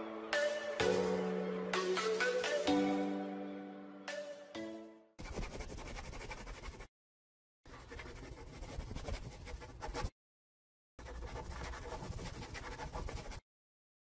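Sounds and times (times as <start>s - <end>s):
marker writing on paper: 7.7s - 10.1s, 11.0s - 13.4s.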